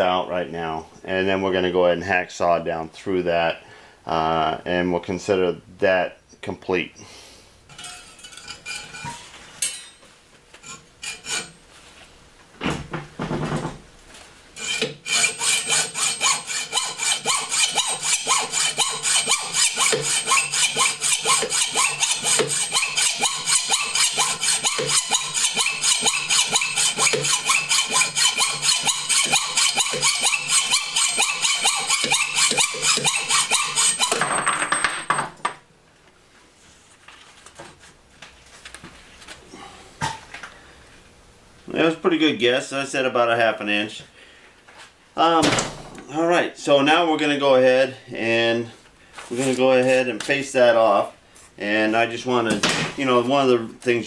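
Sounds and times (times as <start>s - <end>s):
hacksaw cutting metal: 7.7s - 10.0s, 10.6s - 11.6s, 14.6s - 34.4s.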